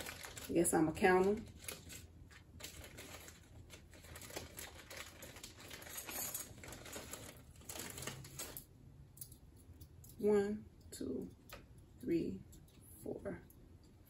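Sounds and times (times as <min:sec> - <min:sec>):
plastic bag rustling: 0:00.0 - 0:08.7.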